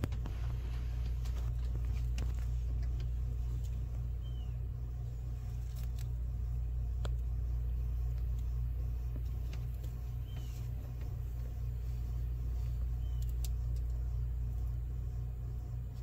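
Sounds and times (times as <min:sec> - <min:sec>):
steady low hum: 0:00.0 - 0:16.0
tortoises biting greens clicks: 0:05.3 - 0:06.3, 0:12.8 - 0:14.0.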